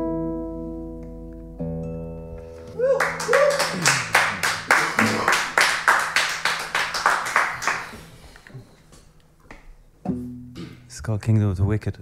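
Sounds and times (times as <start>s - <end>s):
people clapping: 2.6s - 8.5s.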